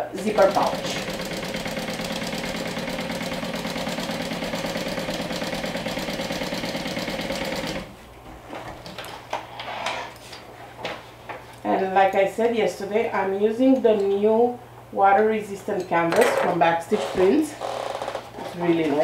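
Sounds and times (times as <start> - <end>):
sewing machine running: 0.0 - 7.9.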